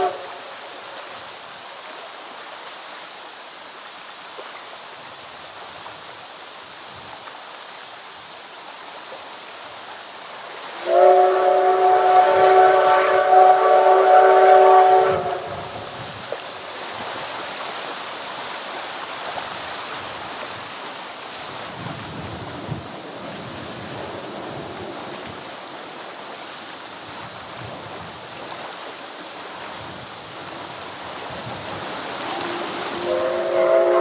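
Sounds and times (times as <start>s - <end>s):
steam locomotive whistle: 0.0s - 0.6s, 10.8s - 15.9s, 32.2s - 34.0s
choppy water: 0.0s - 34.0s
strong wind: 10.8s - 17.4s, 21.4s - 28.6s, 29.6s - 34.0s.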